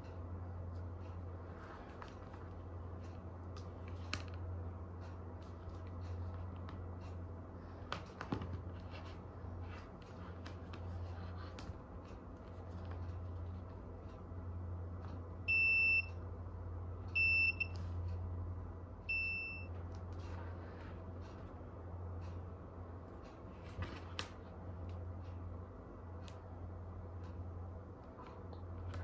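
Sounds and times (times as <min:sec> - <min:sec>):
multimeter continuity beeps: 0:15.4 - 0:16.3, 0:17.1 - 0:17.9, 0:19.0 - 0:19.8.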